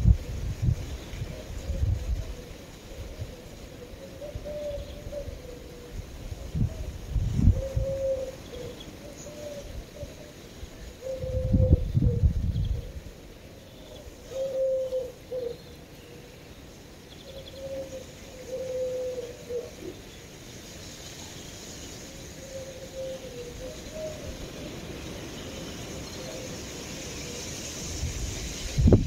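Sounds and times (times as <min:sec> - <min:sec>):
steady background hiss: 0:00.0 - 0:29.0
pigeon cooing: 0:01.4 - 0:06.0, 0:07.5 - 0:10.3, 0:11.0 - 0:13.0, 0:13.9 - 0:16.3, 0:17.3 - 0:20.0, 0:22.4 - 0:24.4.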